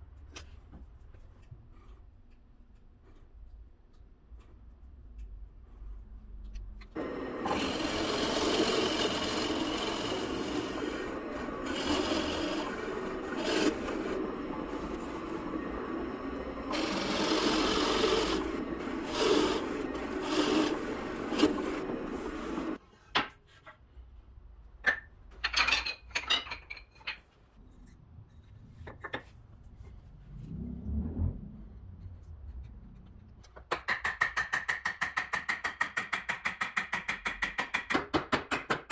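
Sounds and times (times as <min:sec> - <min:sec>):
drill press boring wood: 0:07.0 - 0:22.8.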